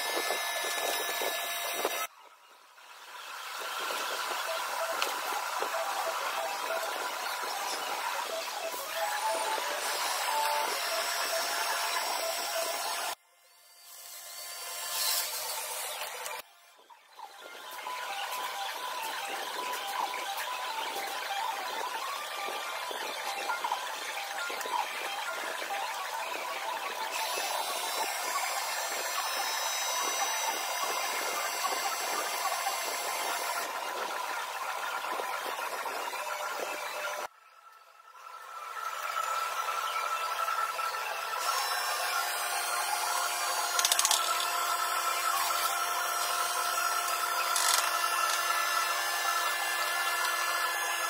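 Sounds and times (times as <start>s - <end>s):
plunge joiner cutting wood: 0.0s - 2.1s, 3.6s - 13.2s, 22.8s - 33.8s, 41.4s - 51.0s
shop machinery hum: 0.0s - 37.3s, 37.9s - 51.0s
workshop noise: 3.3s - 13.2s, 13.8s - 37.3s, 38.7s - 51.0s.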